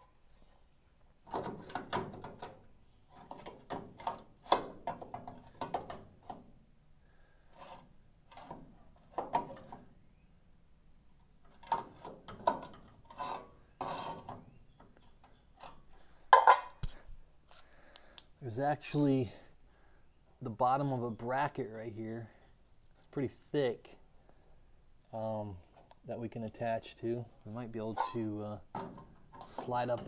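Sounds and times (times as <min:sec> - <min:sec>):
sheet metal scraping and clicking: 0:01.3 - 0:06.5, 0:07.5 - 0:09.9, 0:11.4 - 0:17.0, 0:27.8 - 0:30.0.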